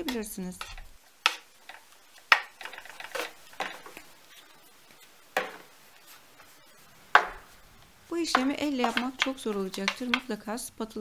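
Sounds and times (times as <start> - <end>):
dough squishing: 0.0 - 10.4
spatula edge tapping wooden board: 7.2 - 7.5, 8.3 - 10.3.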